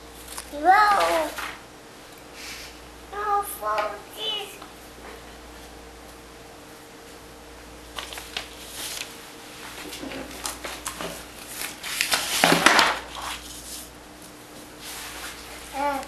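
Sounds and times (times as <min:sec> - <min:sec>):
paper rustling and scraping: 0:07.9 - 0:14.0, 0:14.8 - 0:15.8.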